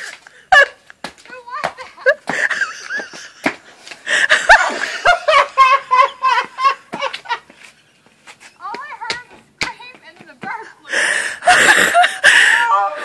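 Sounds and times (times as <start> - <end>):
people laughing hard: 2.0 - 3.5, 4.1 - 7.6, 11.4 - 13.0.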